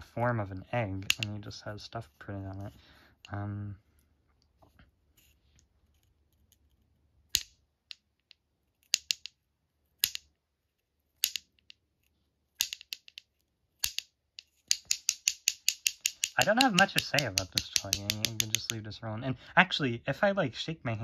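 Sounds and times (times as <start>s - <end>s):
clacker snapping: 7.3s - 9.3s, 10.0s - 10.3s, 12.6s - 18.8s.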